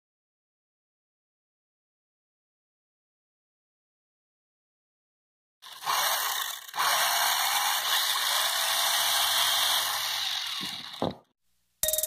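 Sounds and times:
toy car motor whirring: 0:05.6 - 0:11.1.

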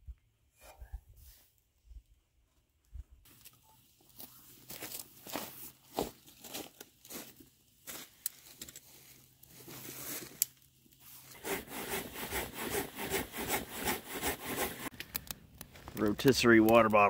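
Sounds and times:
wood fire crackling: 0:14.9 - 0:17.0.

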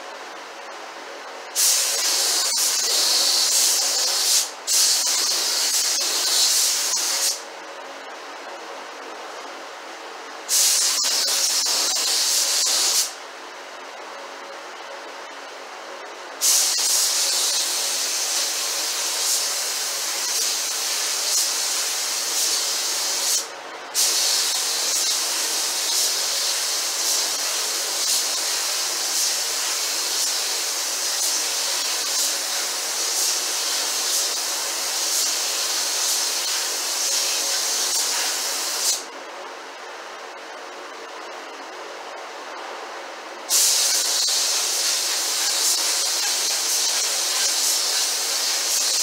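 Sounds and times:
paint spray gun hissing: 0:01.5 - 0:07.4, 0:10.5 - 0:13.2, 0:16.4 - 0:39.1, 0:43.5 - 0:49.0.

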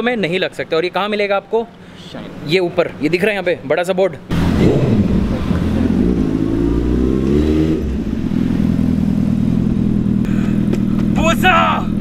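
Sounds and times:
motorcycle engine revving: 0:04.3 - 0:12.0.

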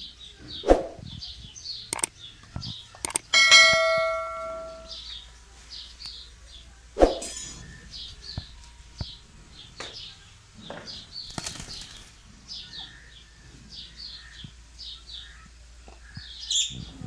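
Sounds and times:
sharp clicks on wire cage: 0:01.9 - 0:03.3
parakeets chirping: 0:07.8 - 0:17.0.

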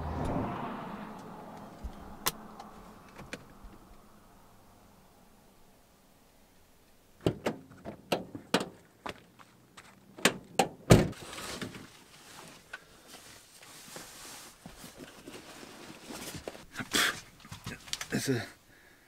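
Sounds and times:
knocks and clunks: 0:07.2 - 0:09.2, 0:10.2 - 0:11.8
soft rustling: 0:11.2 - 0:18.1.

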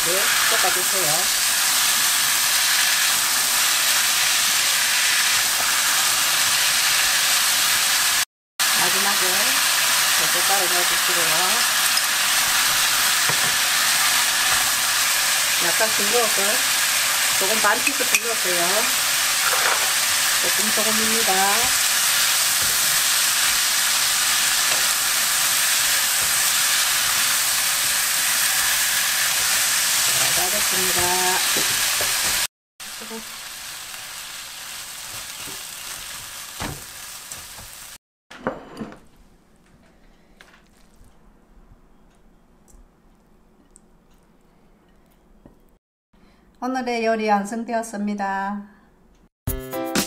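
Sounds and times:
vegetables sizzling in a wok: 0:00.0 - 0:38.0.

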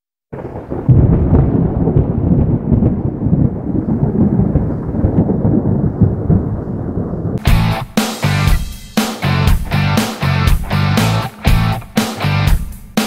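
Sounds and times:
thunder rolling rumble: 0:00.3 - 0:07.8.

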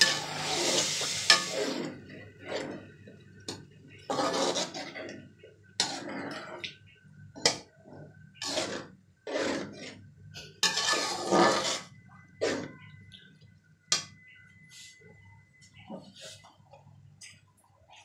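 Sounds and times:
metal spoon scraping steel pan: 0:00.0 - 0:02.8, 0:04.0 - 0:05.0, 0:05.8 - 0:06.6, 0:08.4 - 0:12.9.

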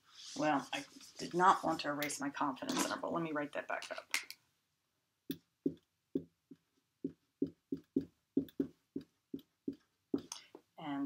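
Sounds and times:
marker tapping on whiteboard: 0:05.3 - 0:10.3.

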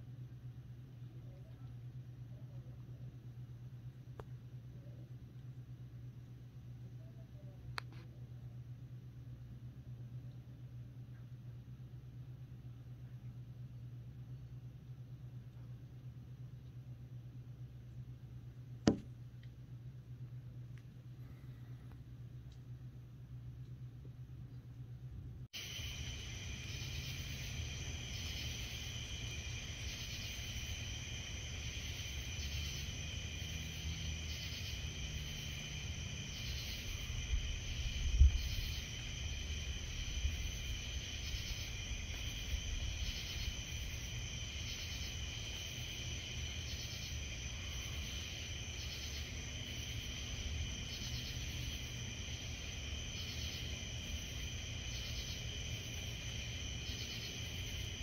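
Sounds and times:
low thump: 0:18.8 - 0:19.1
crickets and katydids trilling: 0:25.6 - 0:58.0.

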